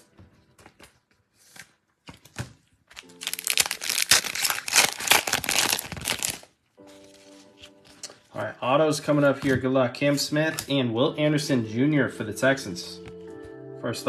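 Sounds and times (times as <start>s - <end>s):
foil wrapper tearing and crinkling: 1.4s - 8.1s.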